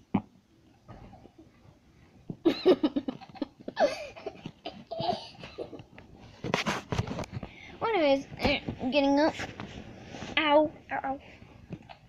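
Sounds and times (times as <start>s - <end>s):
child laughing: 2.5s - 5.8s.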